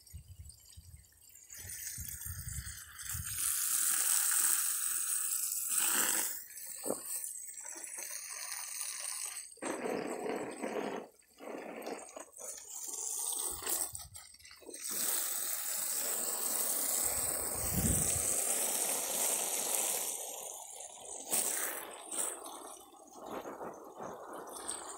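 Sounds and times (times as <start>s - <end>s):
water splashing onto plants: 10.6s - 24.9s.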